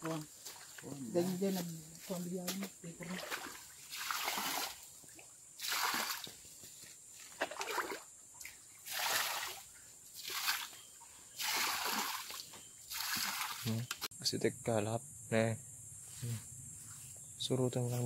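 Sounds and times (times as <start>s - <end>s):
muddy water splashing: 2.4s - 6.4s, 7.2s - 14.1s.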